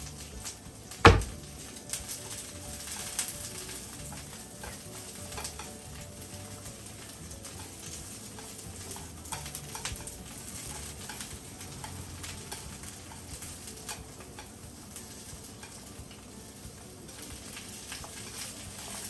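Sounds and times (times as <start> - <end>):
cabbage sizzling in a frying pan: 0.0 - 19.0
chopsticks scraping a pan: 1.3 - 16.3, 17.1 - 19.0.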